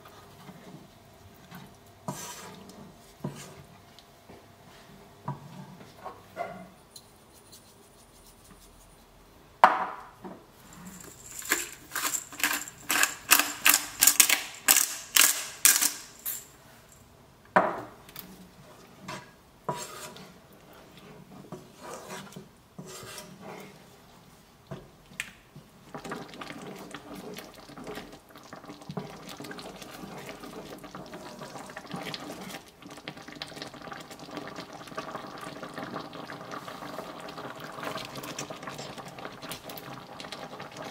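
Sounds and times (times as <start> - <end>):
spoon stirring and scraping sauce: 1.5 - 3.7, 10.6 - 15.0, 18.3 - 24.0
pepper mill grinding: 10.6 - 17.0
sauce simmering: 23.5 - 40.9.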